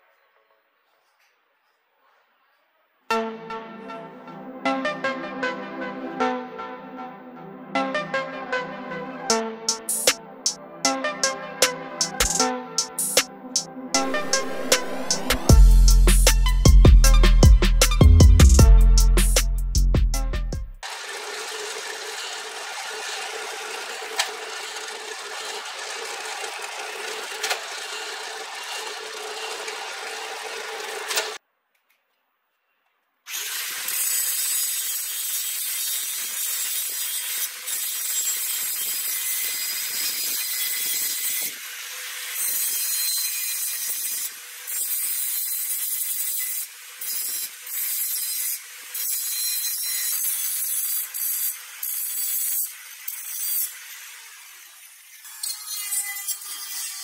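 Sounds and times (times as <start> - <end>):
angle grinder cutting steel: 9.3 - 18.1, 20.8 - 31.4, 33.3 - 57.0
drill press boring through steel: 20.8 - 31.4, 33.3 - 57.0.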